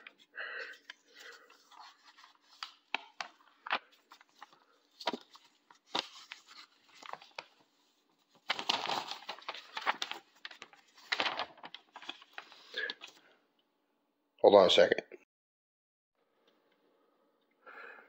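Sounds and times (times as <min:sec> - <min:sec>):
paper crackling: 0:00.0 - 0:13.2
paper rustling: 0:00.0 - 0:13.2.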